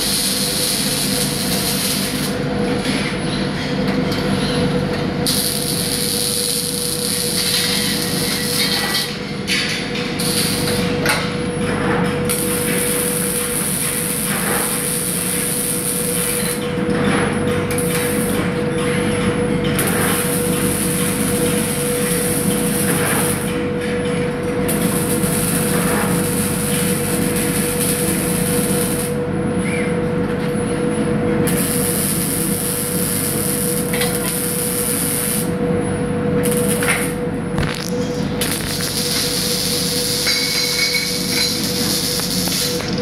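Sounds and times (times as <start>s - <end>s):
welding arc hissing and crackling: 0.0s - 2.4s, 5.2s - 9.2s, 10.2s - 11.0s, 12.3s - 16.6s, 17.7s - 18.5s, 19.8s - 23.5s, 24.7s - 29.2s, 31.5s - 35.6s, 36.4s - 43.0s
factory machinery hum: 0.0s - 43.0s.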